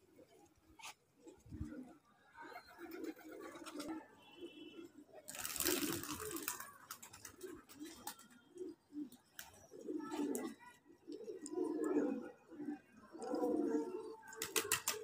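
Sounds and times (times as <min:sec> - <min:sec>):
pigeons cooing: 0:00.0 - 0:15.0
loud wing rustle: 0:05.3 - 0:06.6.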